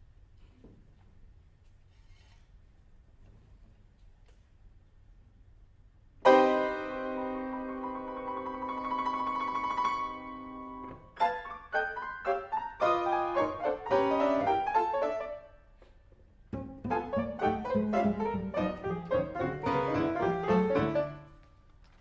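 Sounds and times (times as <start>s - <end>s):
grand piano jazz piece: 6.2s - 22.0s.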